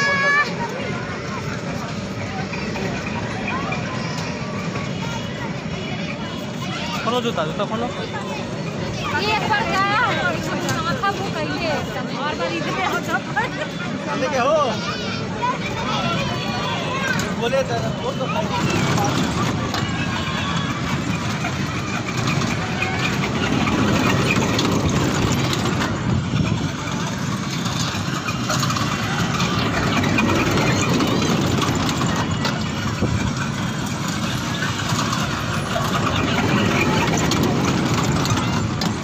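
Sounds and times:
rumble of moving train cars: 0.0 - 39.0
toy train motor noise: 14.7 - 39.0.

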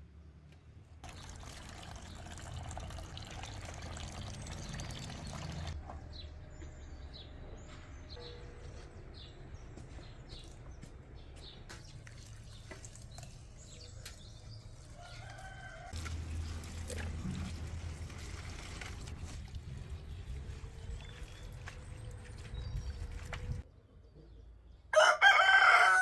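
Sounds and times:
splashing and clatter of washing: 1.0 - 5.8, 11.7 - 23.6
water running into steel bowl: 1.0 - 5.8
rooster crowing: 15.0 - 16.0, 24.9 - 26.0.

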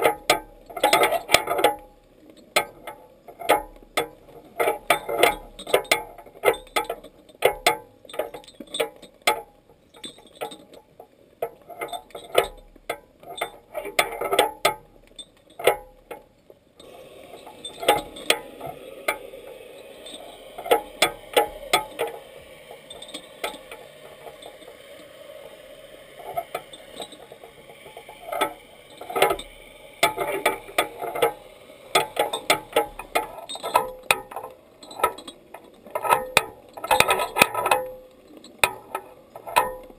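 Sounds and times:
underwater clicks and crackles: 0.0 - 39.9
water hiss: 16.8 - 39.9.

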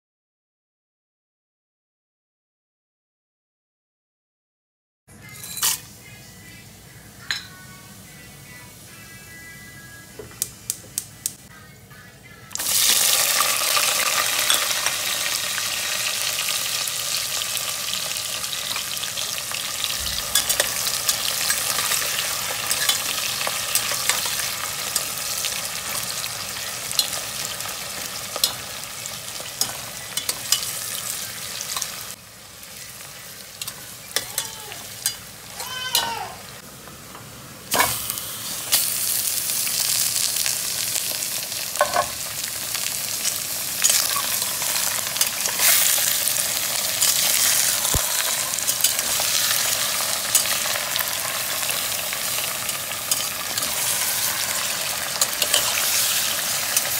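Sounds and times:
meat sizzling: 12.6 - 56.9
onions sizzling in hot oil: 12.6 - 56.9.

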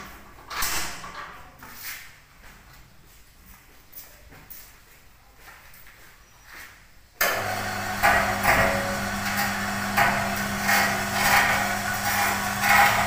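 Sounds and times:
electric hoist humming: 7.2 - 13.0.

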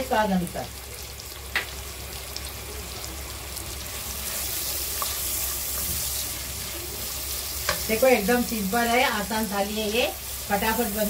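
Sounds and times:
onions sizzling in hot oil: 0.0 - 11.0
spatula stirring in pan: 3.9 - 11.0.

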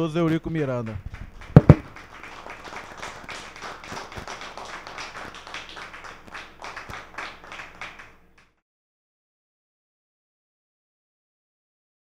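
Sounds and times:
people clapping: 0.2 - 8.6.

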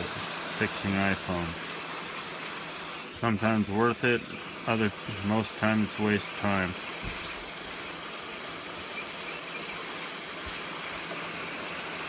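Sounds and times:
hot-air soldering gun blowing: 0.0 - 12.0.

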